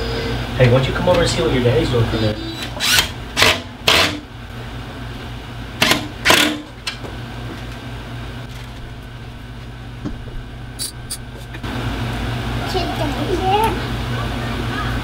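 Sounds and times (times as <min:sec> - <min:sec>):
steady low hum: 0:00.0 - 0:15.0
cordless drill driving screws: 0:02.6 - 0:04.1.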